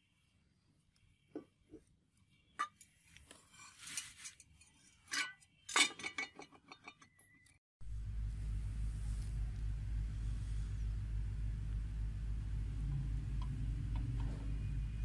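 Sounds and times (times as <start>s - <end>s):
steady low rumble: 7.8s - 15.0s.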